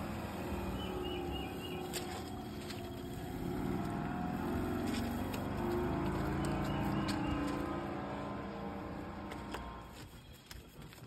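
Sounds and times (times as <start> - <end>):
engine rumble: 0.0 - 11.0
small bird chirping: 0.1 - 3.5.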